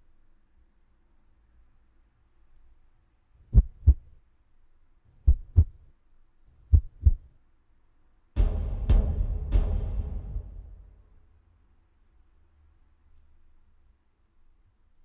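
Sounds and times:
heartbeat double thumps: 3.5s - 4.1s, 5.2s - 5.8s, 6.7s - 7.3s
loud low hit ringing: 8.4s - 11.2s.

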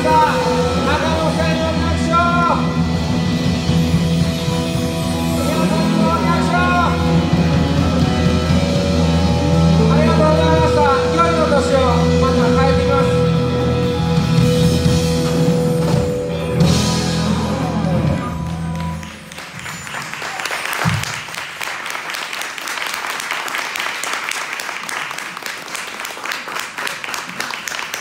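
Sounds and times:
rock band playing: 0.0s - 21.2s
audience applauding: 17.7s - 28.0s.

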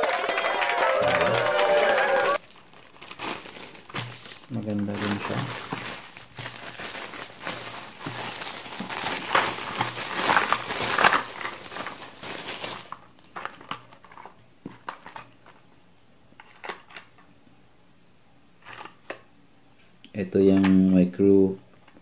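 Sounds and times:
plastic bag crinkling: 2.4s - 14.3s.

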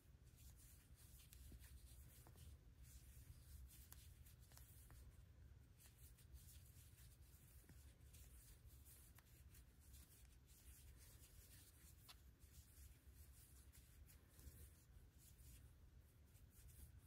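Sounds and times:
yarn rubbing: 0.2s - 17.0s.

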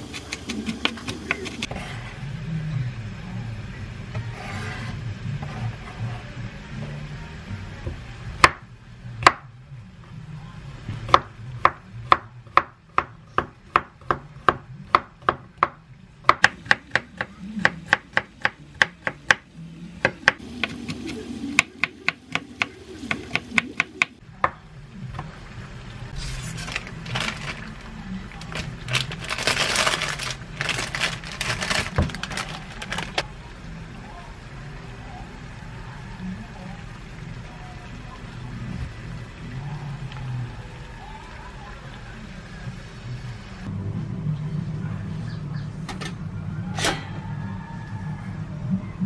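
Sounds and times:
paper wrapping crinkling: 26.2s - 33.2s.

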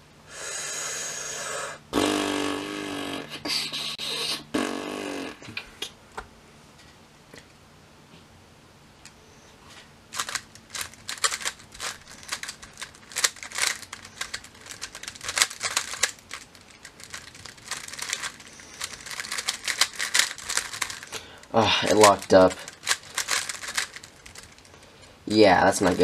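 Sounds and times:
plastic puzzle cube clicking: 10.2s - 21.1s, 22.1s - 24.6s.

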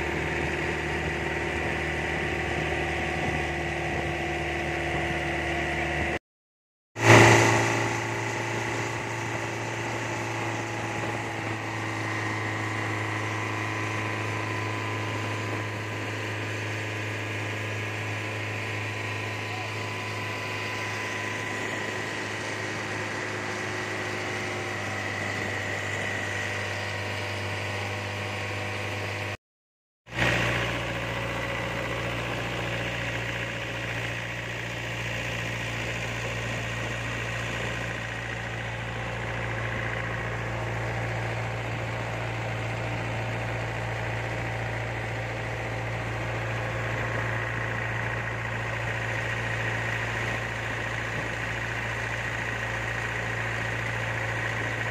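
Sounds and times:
motorboat engine running: 0.0s - 6.2s, 7.0s - 29.4s, 30.1s - 54.9s.

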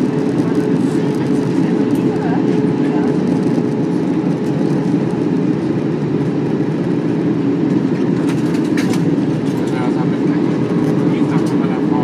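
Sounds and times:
engine and airflow rush: 0.0s - 12.0s.

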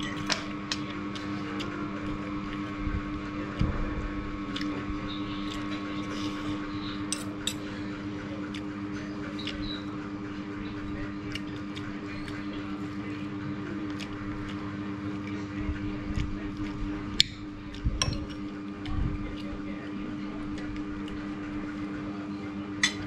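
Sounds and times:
steady low hum: 0.0s - 23.0s
cutlery clicking on plates: 7.1s - 7.7s.

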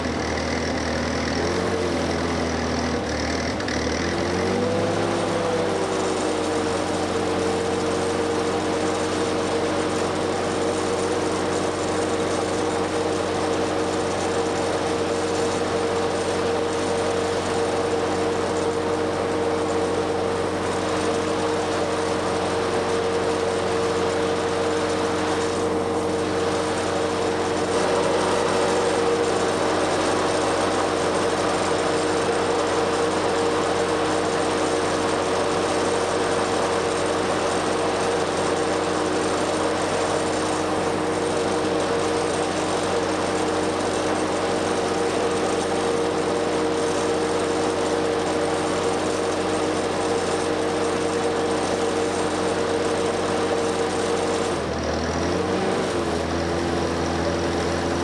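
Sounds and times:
welder engine running: 0.0s - 58.0s.

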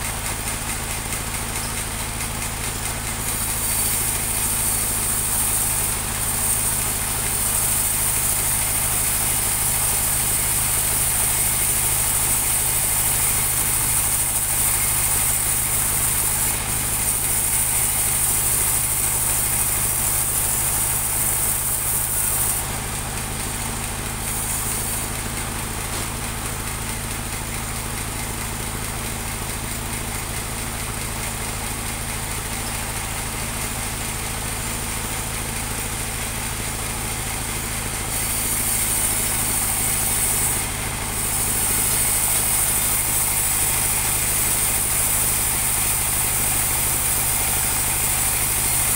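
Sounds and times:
sawmill engine humming: 0.0s - 48.9s
saw blade hissing through log: 3.2s - 27.1s, 34.3s - 48.9s.

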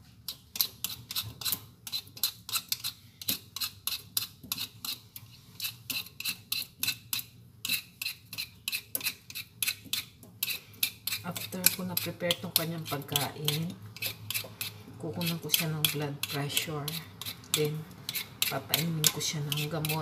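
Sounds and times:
hand peeler scraping fruit skin: 0.3s - 20.0s.

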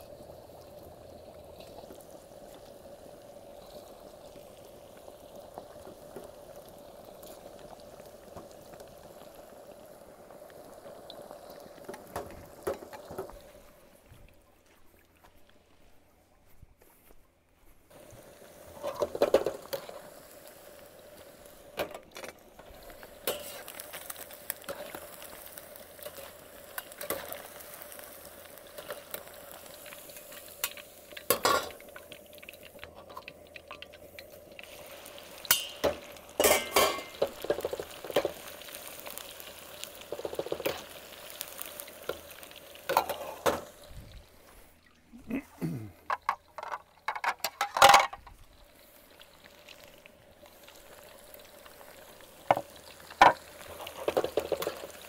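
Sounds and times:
chicken sizzling in hot oil: 0.0s - 14.0s, 17.9s - 55.0s
utensil clinking and scraping wok: 23.2s - 23.8s, 30.1s - 31.8s, 35.4s - 38.4s, 42.9s - 43.6s.

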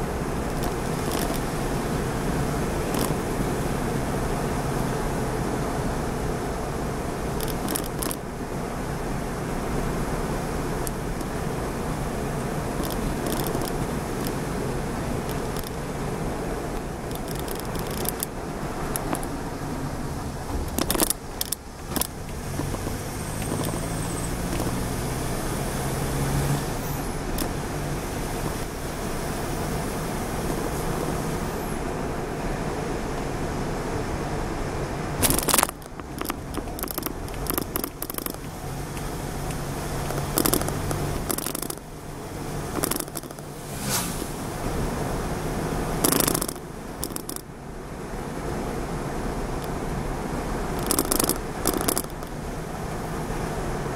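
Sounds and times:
car engine and tyre noise: 0.0s - 53.9s
sharp rattling knocks: 0.5s - 1.6s, 7.4s - 8.3s, 12.7s - 14.5s, 16.8s - 19.4s, 20.3s - 25.2s, 35.2s - 43.6s, 46.0s - 47.5s, 50.8s - 52.4s.

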